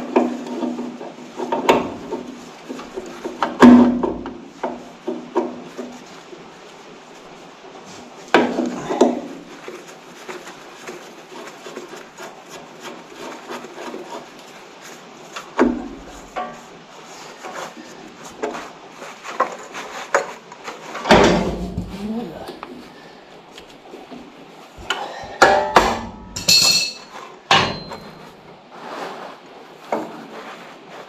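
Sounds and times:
hand tools knocking and clicking: 24.9s - 28.0s.

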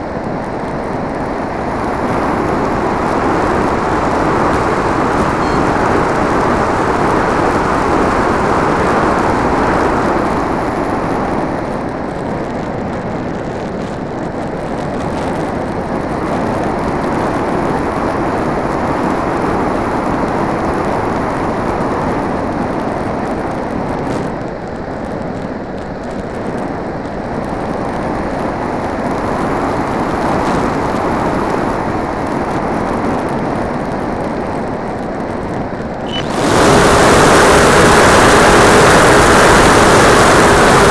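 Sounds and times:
rush of airflow: 0.0s - 22.5s, 35.7s - 40.9s
model plane motor: 36.1s - 40.9s.

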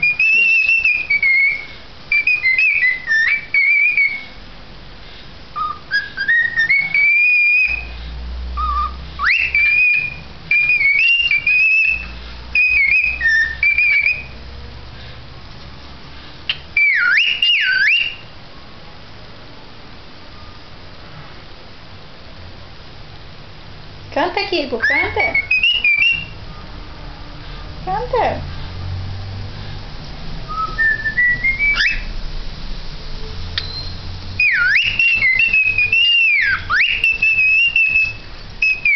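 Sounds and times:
cockatiel whistling: 0.0s - 4.4s, 5.6s - 8.0s, 8.6s - 14.4s, 16.5s - 18.3s, 24.7s - 26.7s, 30.5s - 32.2s, 33.6s - 38.9s.

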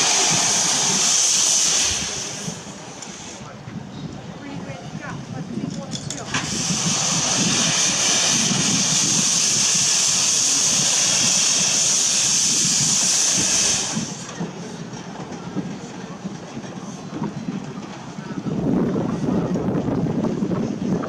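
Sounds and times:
loud steam hiss: 0.0s - 3.5s, 5.9s - 17.9s
locomotive running noise: 0.0s - 21.0s.

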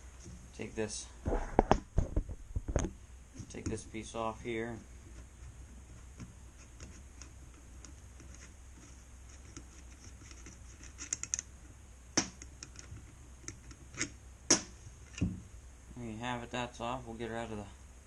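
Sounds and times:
nut scratching on threads: 3.4s - 14.2s.

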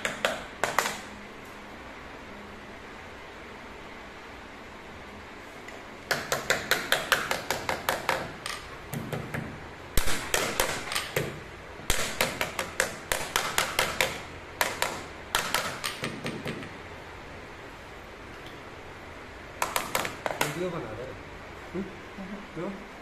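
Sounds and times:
hammer tapping on trim strip: 0.0s - 1.1s, 6.1s - 16.8s, 19.6s - 20.8s.

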